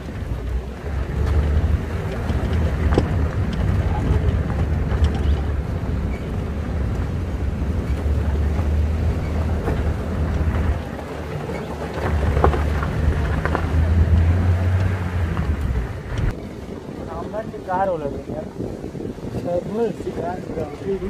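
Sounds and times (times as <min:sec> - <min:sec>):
vehicle engine rumble: 0:00.0 - 0:21.0
wind buffeting microphone: 0:00.0 - 0:21.0
vehicle knocks on rough track: 0:00.9 - 0:16.4.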